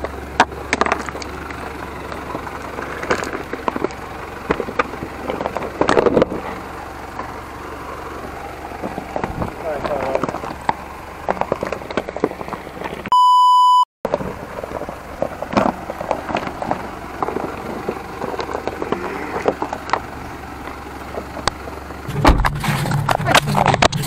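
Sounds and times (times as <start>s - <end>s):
stones clicking and cracking: 0.0s - 13.1s, 14.1s - 22.0s
tyres crunching over rocks: 0.0s - 13.1s, 14.1s - 24.0s
low engine drone: 0.0s - 13.3s, 14.1s - 24.0s
electronic beep tone: 13.1s - 13.9s.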